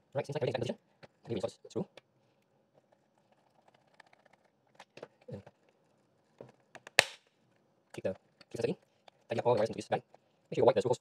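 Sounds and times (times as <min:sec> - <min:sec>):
plastic parts clicking and knocking: 0:06.4 - 0:07.2.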